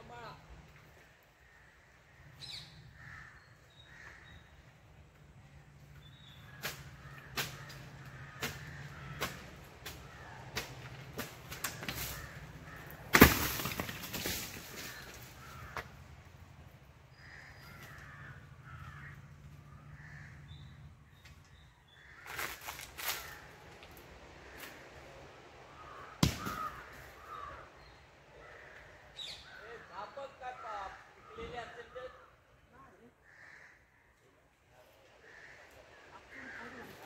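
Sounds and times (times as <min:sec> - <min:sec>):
machete chopping coconuts: 0:08.4 - 0:12.1, 0:13.1 - 0:14.5, 0:26.2 - 0:26.7
coconuts crashing down: 0:12.9 - 0:15.1, 0:26.2 - 0:26.9.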